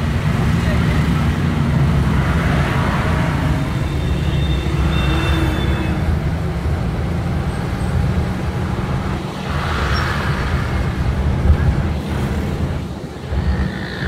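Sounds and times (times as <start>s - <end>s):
vehicle engine rumble: 0.0s - 14.0s
tyres hissing on wet road: 7.8s - 13.4s.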